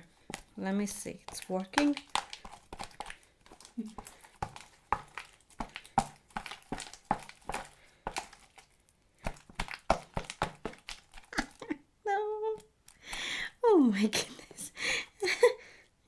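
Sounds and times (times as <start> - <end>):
slime clicking and popping: 1.3 - 8.7, 9.3 - 11.4.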